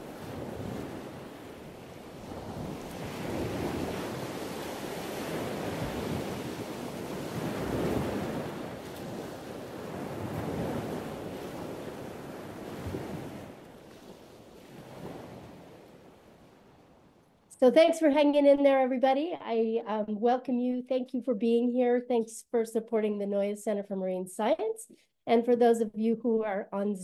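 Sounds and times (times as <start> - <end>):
waves washing onto shore: 0.0 - 17.2.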